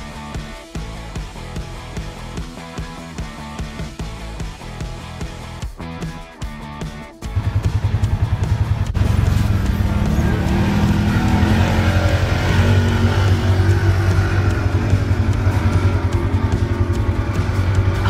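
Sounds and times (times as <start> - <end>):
engine running with pulsing beat: 0.0 - 18.0.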